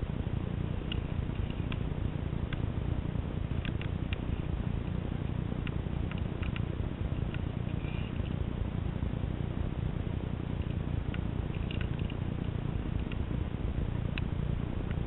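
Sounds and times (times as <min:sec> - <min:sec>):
steady low rumbling noise: 0:00.0 - 0:15.0
faint irregular clicks: 0:00.8 - 0:02.8, 0:03.5 - 0:08.5, 0:10.5 - 0:15.0.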